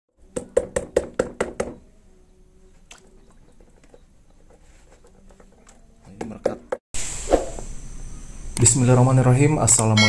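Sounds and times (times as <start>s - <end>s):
hand slapping water in basin: 2.9s - 3.1s.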